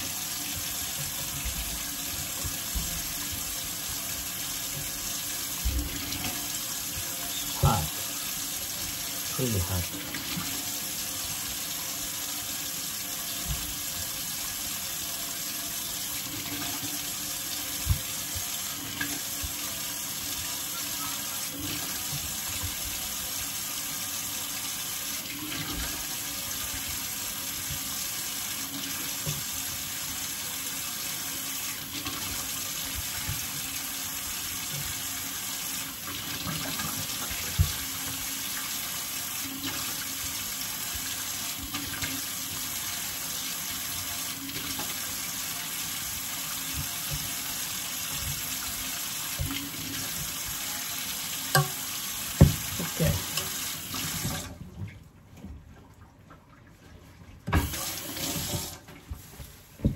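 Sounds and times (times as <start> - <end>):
tap running into sink: 36.1 - 38.4, 46.6 - 50.6, 51.5 - 54.5, 57.4 - 59.9.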